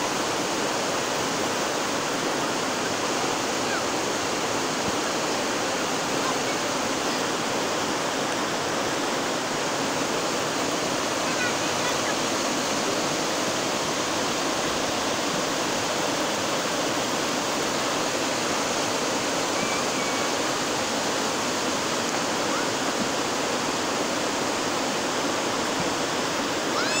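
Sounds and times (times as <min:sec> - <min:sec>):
river rushing over rocks: 0:00.0 - 0:27.0.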